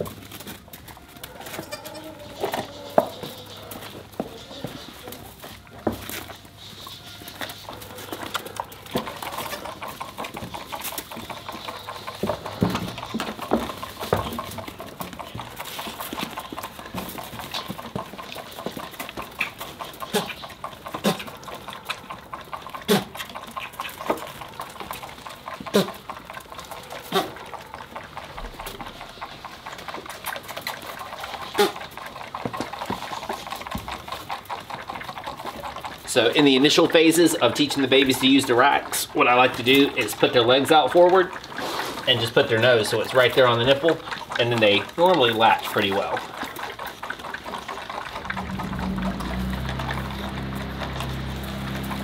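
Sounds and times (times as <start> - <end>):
goat hooves on wooden boards: 0.0 - 52.0
goat kids bleating: 1.4 - 5.3.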